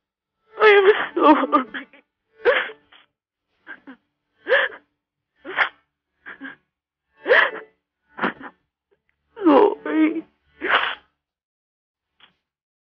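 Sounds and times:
woman sobbing: 0.6 - 2.9, 3.7 - 4.9, 7.2 - 7.6.

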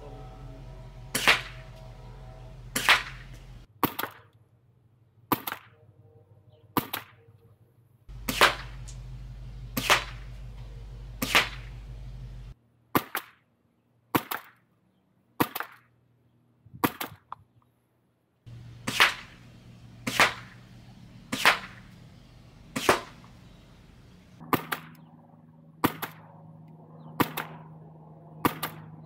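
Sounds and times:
suppressed airsoft rifle shots: 1.2 - 1.6, 2.8 - 4.2, 8.1 - 12.2, 18.5 - 22.1, 22.7 - 23.4, 24.4 - 25.0, 25.8 - 26.2, 27.2 - 27.6, 28.4 - 28.8.

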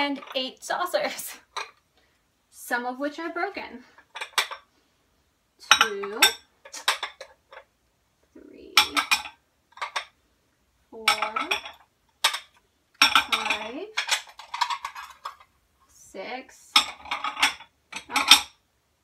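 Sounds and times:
ceramic cups clinking: 5.6 - 7.6, 8.8 - 10.1, 11.0 - 15.4, 16.8 - 18.6.

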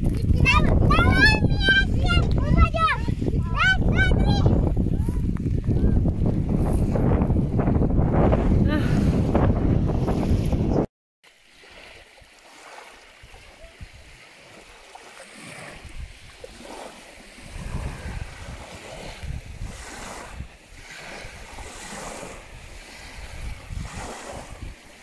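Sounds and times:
wind rumbling on microphone: 0.0 - 10.9, 13.2 - 25.0
small waves lapping on shore: 10.0 - 25.0.

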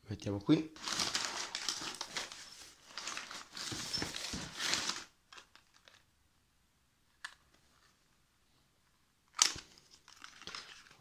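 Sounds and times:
packing paper rustling: 0.8 - 6.0, 9.4 - 11.0.

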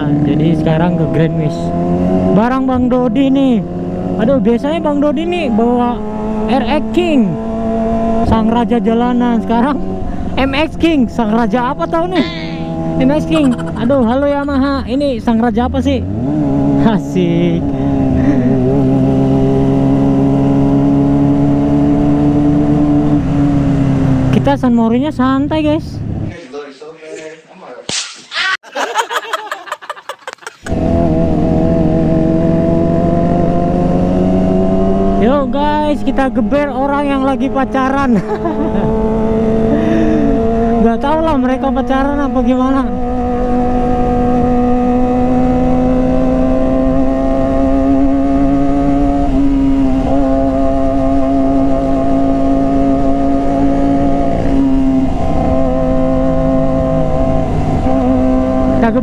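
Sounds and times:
motorcycle engine cruising: 0.0 - 26.4, 29.7 - 59.0
person speaking: 8.7 - 16.1, 24.4 - 30.7.

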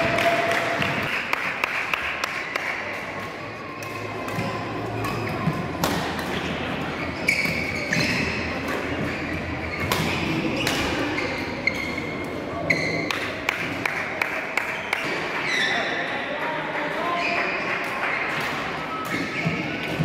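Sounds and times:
murmur of sports hall: 0.0 - 20.0
court shoes squeaking: 3.0 - 13.4, 14.6 - 16.0, 17.1 - 20.0
racket hitting shuttlecock: 3.2 - 12.0.

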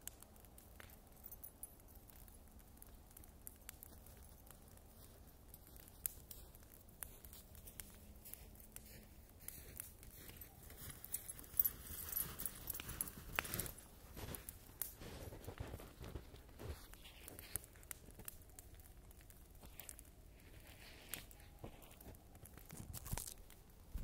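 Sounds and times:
bonfire crackling and popping: 0.0 - 24.0
crisp clicks: 5.5 - 23.7.

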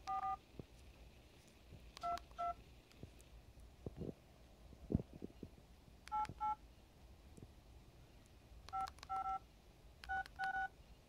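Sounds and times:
phone keypad beeps: 0.0 - 0.4, 2.0 - 2.6, 6.1 - 6.6, 8.7 - 9.4, 10.0 - 10.7.

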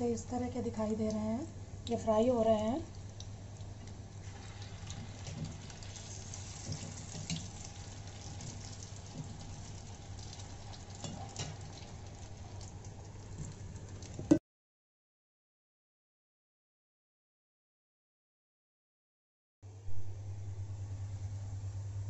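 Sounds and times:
food deep-frying sizzle: 0.4 - 14.4
low hum: 19.7 - 22.0.

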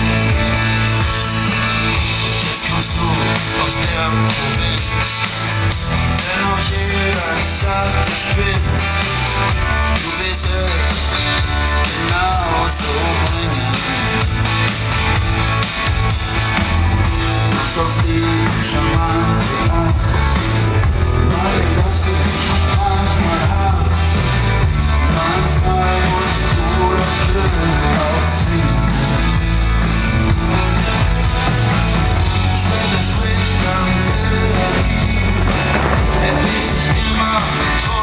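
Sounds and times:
live rock music over loudspeakers: 0.0 - 38.0
strong bass line: 0.0 - 38.0
steady drum beat: 29.4 - 38.0.

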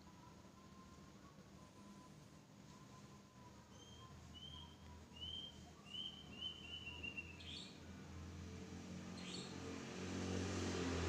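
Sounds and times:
bird chirping: 3.7 - 7.8, 9.2 - 9.6.

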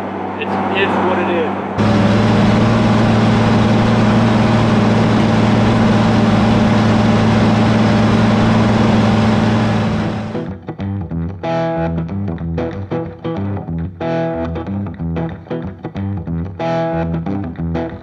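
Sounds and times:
diesel tractor engine running: 1.8 - 10.5.

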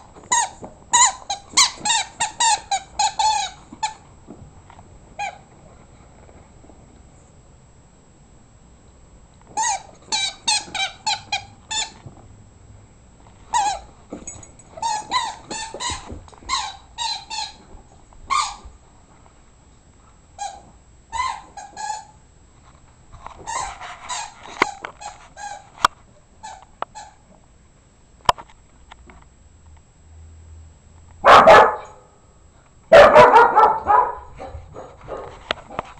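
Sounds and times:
rubber chicken toy squeaking: 0.3 - 4.0, 14.8 - 17.6, 18.3 - 18.6, 20.4 - 22.2.

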